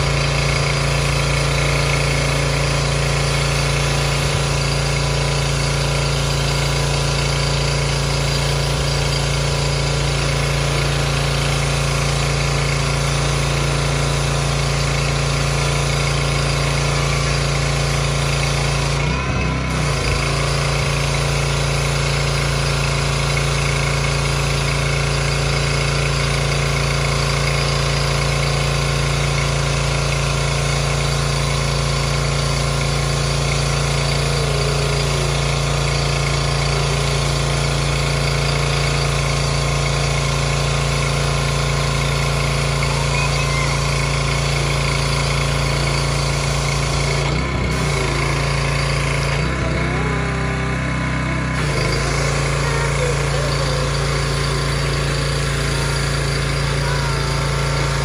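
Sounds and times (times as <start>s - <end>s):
water spray hissing on concrete: 0.0s - 19.1s
pressure washer motor running: 0.0s - 58.0s.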